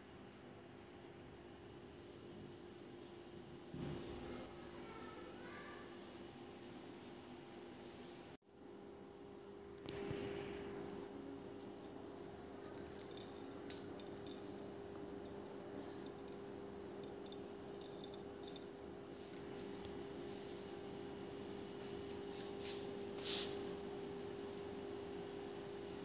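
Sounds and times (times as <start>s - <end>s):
steady hum: 8.5s - 25.9s.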